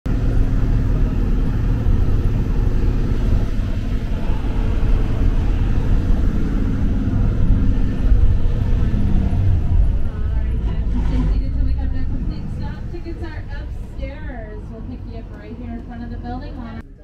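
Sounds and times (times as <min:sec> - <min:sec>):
bus engine droning: 0:00.0 - 0:17.0
road noise: 0:00.1 - 0:17.0.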